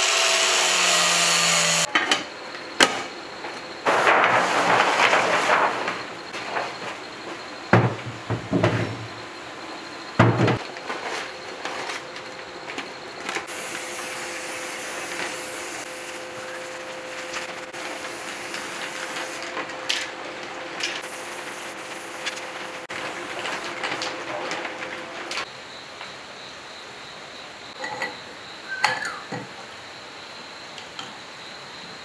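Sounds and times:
paper rustling: 3.9 - 6.9, 20.9 - 25.4
spray paint can hissing: 13.5 - 16.3, 17.8 - 19.4, 21.0 - 22.8.

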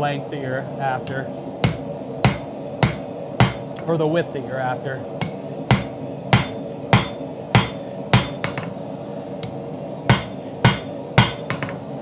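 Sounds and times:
hammer striking steel on anvil: 1.0 - 3.7, 5.2 - 8.8, 10.1 - 11.9.

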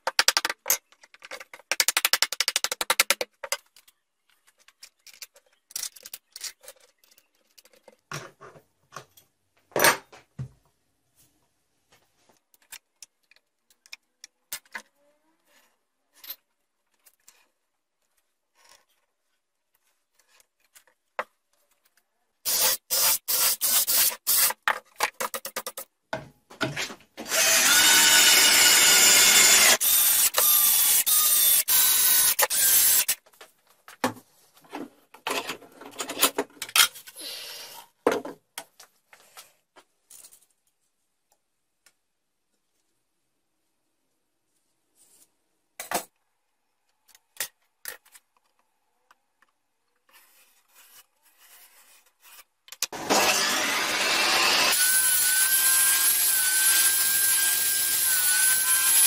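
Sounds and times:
power drill driving screws: 27.3 - 33.2, 52.9 - 59.0.

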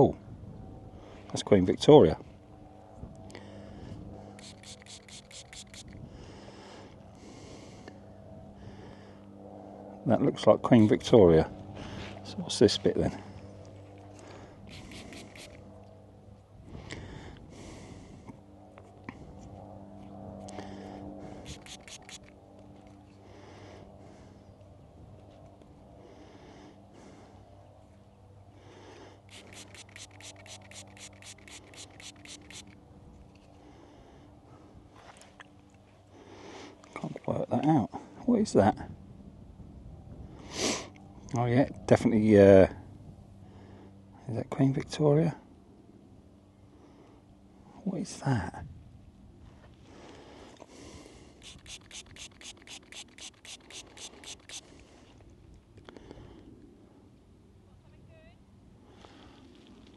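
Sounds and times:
metal detector pinpointer beeping: 4.4 - 5.9, 29.3 - 32.8, 51.4 - 54.6
fingers rubbing soil: 4.4 - 6.0, 14.7 - 15.6, 21.4 - 22.4, 29.3 - 32.8, 51.4 - 54.7.

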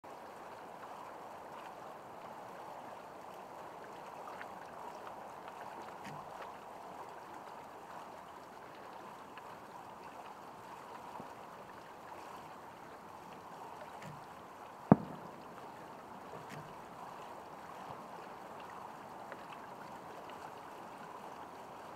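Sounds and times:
firework shell bang: 14.9 - 15.6.

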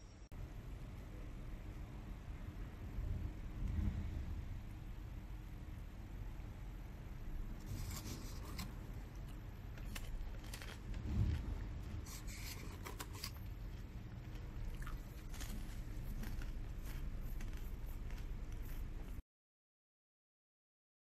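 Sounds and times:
popcorn rustling in paper tub: 7.6 - 8.8, 9.7 - 19.2
paper tub crinkling and clicking: 7.6 - 14.4.

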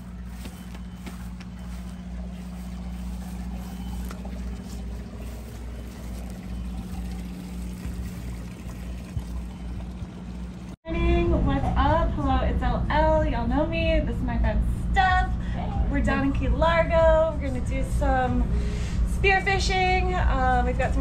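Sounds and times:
boat engine idling: 0.0 - 10.8.

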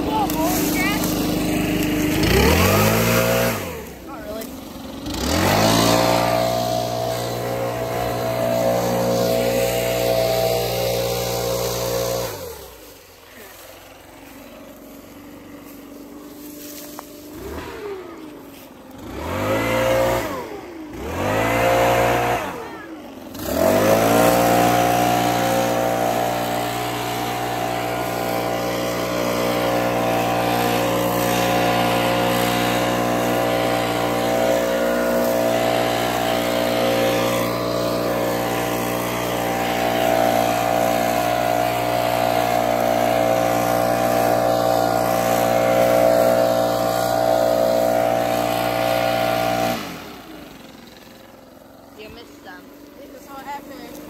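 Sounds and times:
leaf blower running: 0.0 - 54.0.

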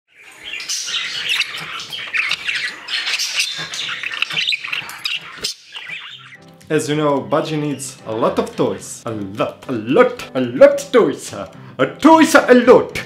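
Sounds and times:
budgerigar chattering: 0.2 - 6.4.

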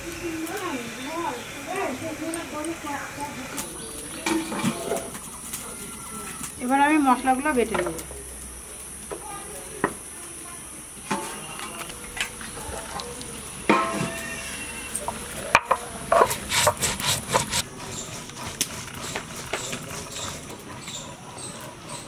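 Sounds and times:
stone grinding on stone: 15.6 - 22.0.

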